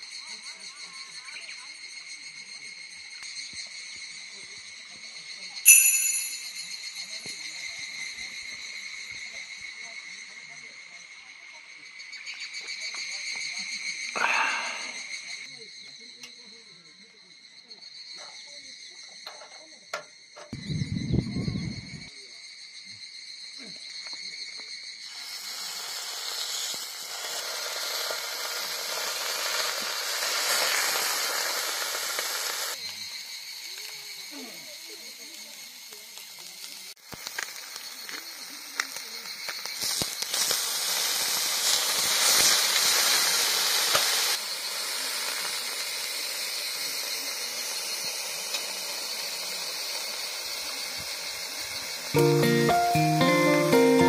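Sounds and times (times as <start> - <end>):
beef sizzling on hot plate: 25.0 - 32.8, 35.5 - 52.9.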